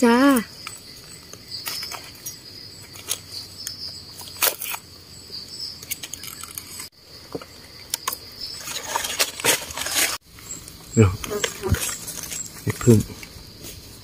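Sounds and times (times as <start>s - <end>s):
forest insects chorus: 0.0s - 14.0s
rustles in dry leaves: 8.5s - 14.0s.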